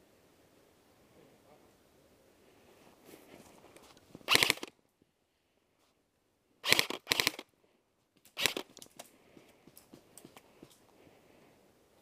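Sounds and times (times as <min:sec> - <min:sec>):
airsoft gun full-auto fire: 0:04.3 - 0:04.7, 0:06.6 - 0:07.4, 0:08.4 - 0:08.7.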